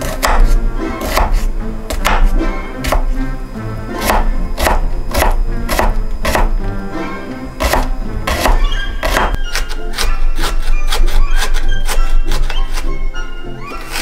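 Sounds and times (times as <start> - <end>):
knife chopping on wooden board: 0.0 - 3.2, 4.0 - 6.6, 7.6 - 12.8.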